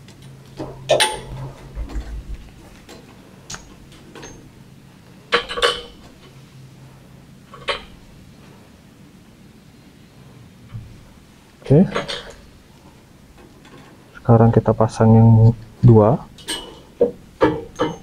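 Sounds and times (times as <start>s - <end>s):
faint low hum: 0.0s - 16.6s
metal fittings clinking on tray: 17.5s - 18.0s.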